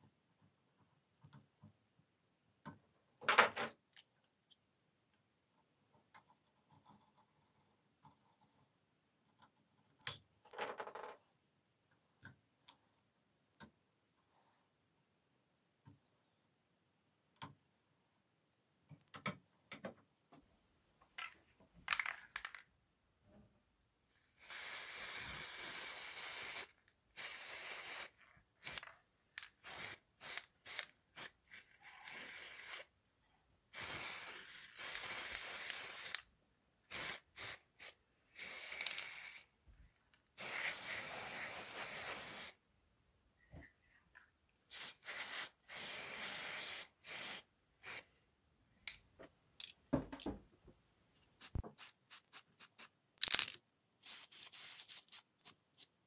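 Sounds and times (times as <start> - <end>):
spray paint can hissing: 24.4 - 28.9, 29.6 - 32.9, 33.7 - 36.2, 36.9 - 39.4, 40.4 - 42.6, 44.7 - 48.1, 51.4 - 55.2.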